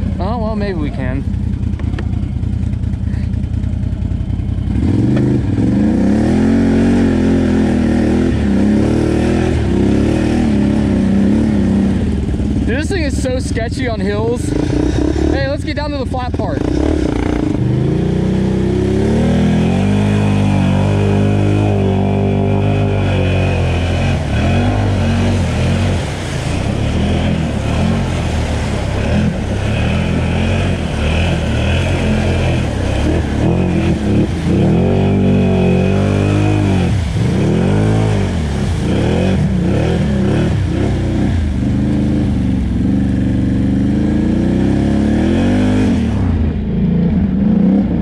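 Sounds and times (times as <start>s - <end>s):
atv engine revving: 0.0s - 48.0s.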